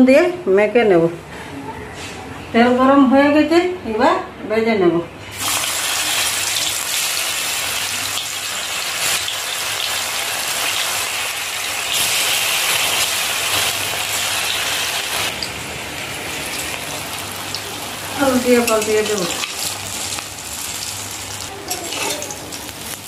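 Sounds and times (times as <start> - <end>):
food sizzling in hot oil: 5.3 - 23.0.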